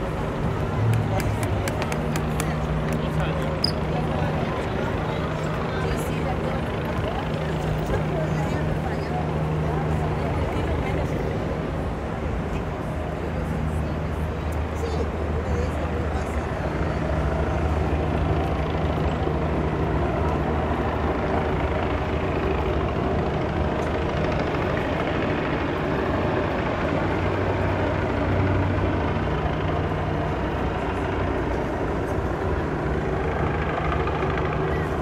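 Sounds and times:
low engine hum of traffic: 0.0s - 35.0s.

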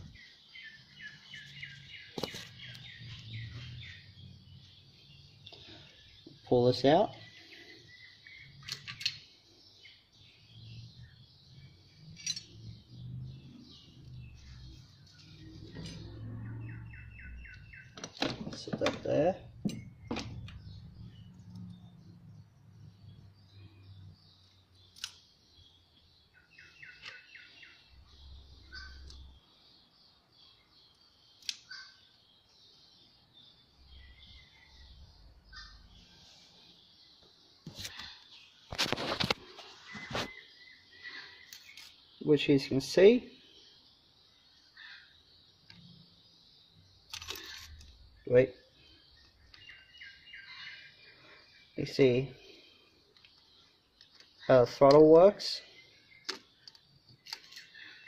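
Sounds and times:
faint birds chirping: 0.0s - 58.0s
sharp clicks of metal parts: 8.6s - 9.2s, 12.2s - 12.6s, 47.1s - 48.0s, 56.2s - 57.7s
faint metallic clicks and clinks: 12.1s - 12.7s.

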